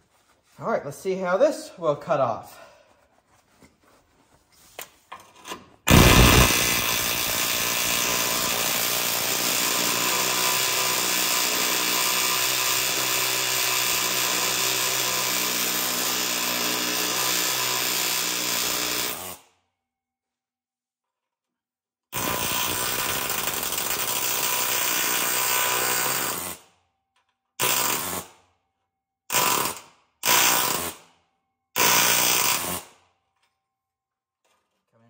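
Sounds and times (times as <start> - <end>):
air hammer chiselling steel: 5.9 - 19.1.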